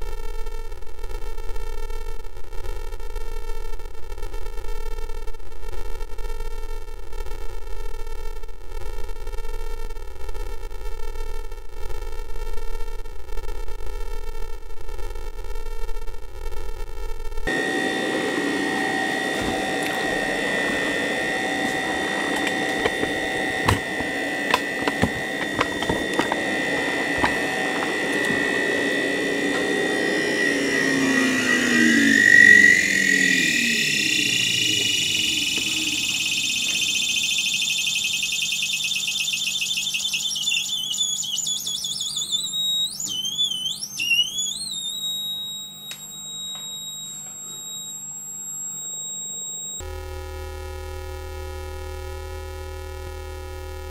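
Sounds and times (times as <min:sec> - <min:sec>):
clicks: 0:17.5 - 0:48.0
electronic motor whine: 0:17.5 - 0:53.9.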